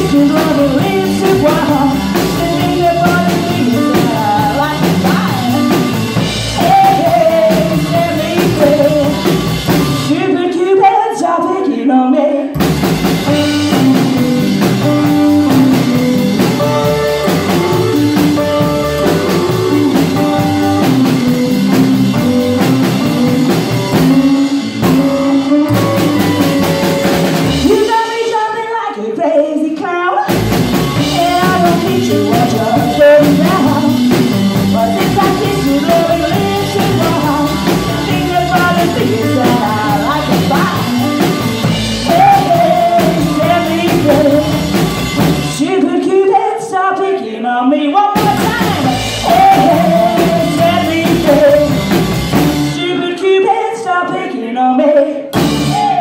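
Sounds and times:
rock and roll band playing: 0.0s - 11.5s, 12.4s - 28.8s, 29.8s - 46.7s, 47.9s - 54.6s, 55.2s - 56.0s
woman singing: 0.0s - 12.6s, 13.3s - 56.0s.

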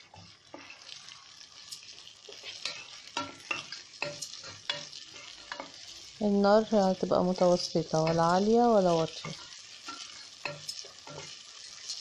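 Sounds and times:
wooden spoon scraping a pot: 0.0s - 6.2s
rice sizzling in oil: 0.0s - 12.0s.

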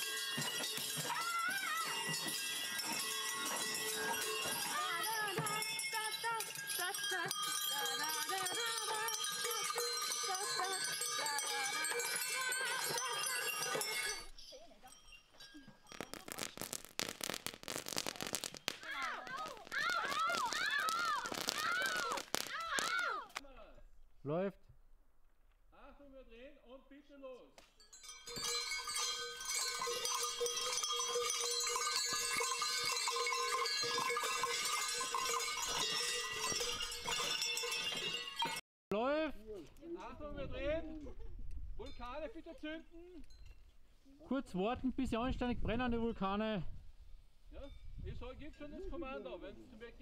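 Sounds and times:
chime-like ringing: 0.0s - 22.0s, 27.8s - 38.6s
cowbells clanging: 0.0s - 22.9s, 27.8s - 38.6s
firework fountains crackling: 15.8s - 23.4s.

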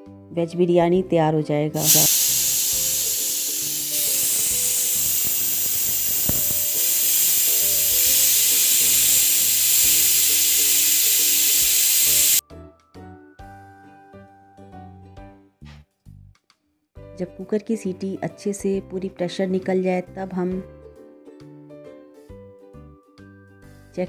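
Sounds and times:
pressure cooker whistle hissing: 1.8s - 12.4s.

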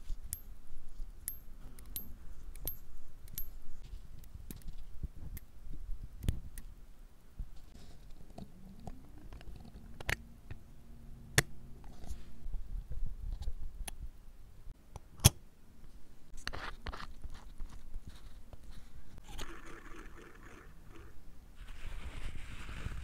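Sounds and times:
watch parts clicking: 1.2s - 3.6s
scraping rustle: 21.6s - 23.0s.

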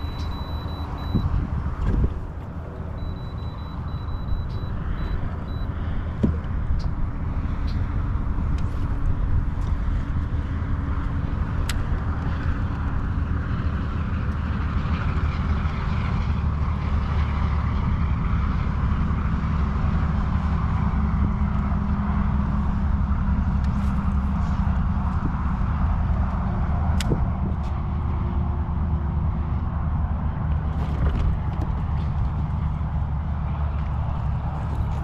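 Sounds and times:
boat motor running: 0.0s - 18.1s
wind: 0.0s - 35.0s.

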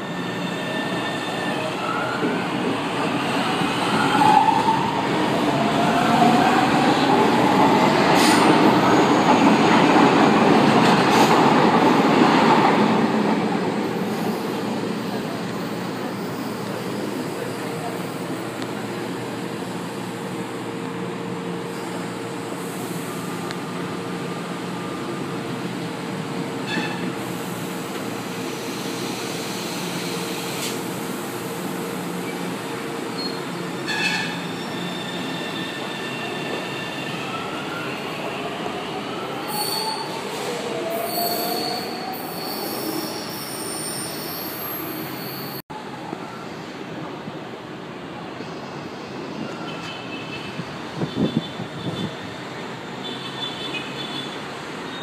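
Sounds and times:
high wheel squeal: 0.0s - 2.3s, 33.2s - 38.0s, 40.8s - 45.6s.

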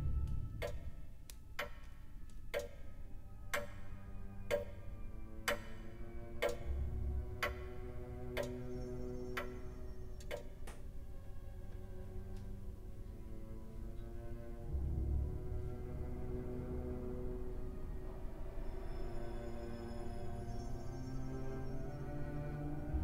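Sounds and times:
faint low drone: 0.0s - 23.0s
faint clicks: 0.2s - 2.9s, 7.4s - 10.9s
grandfather clock ticking: 0.6s - 1.0s, 1.6s - 6.8s, 7.4s - 8.7s.

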